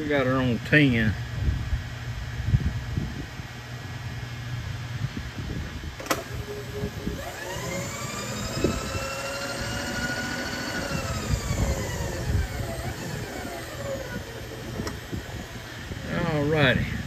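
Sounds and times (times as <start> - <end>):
milling machine motor whine: 6.0 - 17.0.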